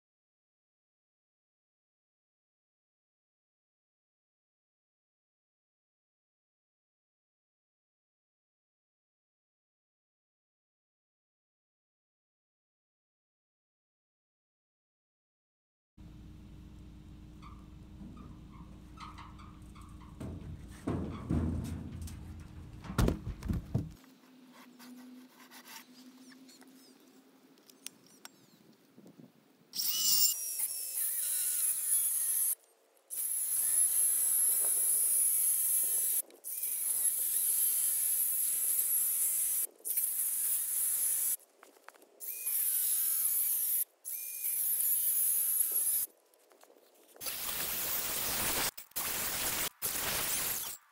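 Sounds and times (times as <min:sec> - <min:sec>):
heavy wooden knocks: 0:20.2 - 0:24.0
circular saw cutting wood: 0:29.8 - 0:41.4, 0:42.2 - 0:46.1.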